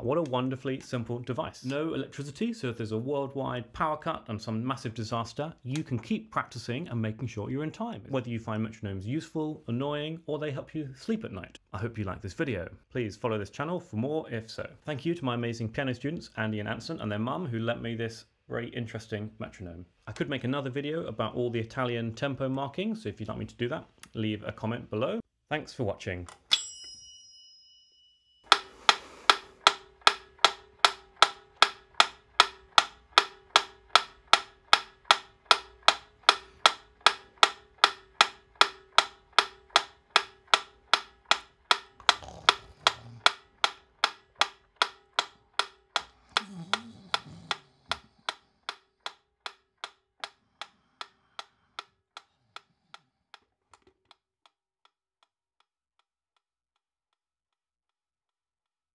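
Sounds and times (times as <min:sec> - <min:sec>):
metronome ticking: 0:28.5 - 0:51.9.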